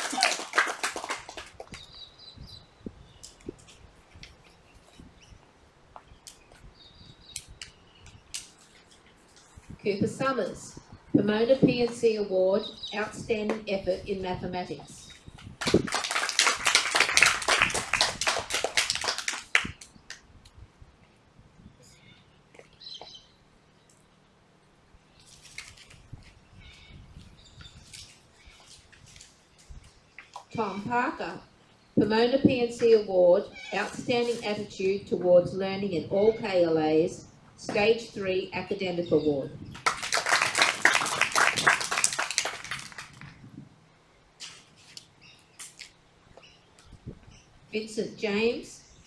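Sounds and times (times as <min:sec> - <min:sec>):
children clapping: 0:00.0 - 0:01.8, 0:15.6 - 0:20.2, 0:39.7 - 0:43.3
faint bird chirps: 0:21.6 - 0:24.0.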